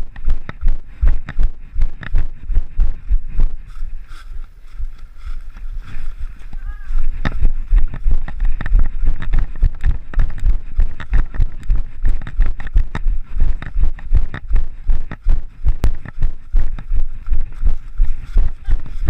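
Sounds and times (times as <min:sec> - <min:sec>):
running footsteps: 0:00.0 - 0:19.0
dry leaves crunching underfoot: 0:03.7 - 0:07.1.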